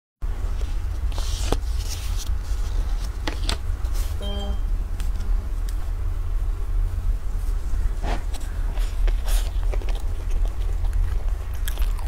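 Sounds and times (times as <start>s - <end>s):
steady low rumble: 0.2s - 12.0s
brief pitched tone: 4.2s - 4.7s.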